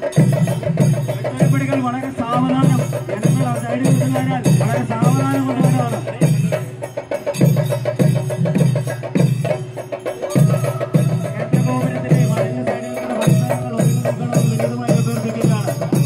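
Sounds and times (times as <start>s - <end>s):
cymbals clashing: 0.0s - 16.0s
heavy drum strokes: 0.0s - 16.0s
held tone: 6.4s - 16.0s.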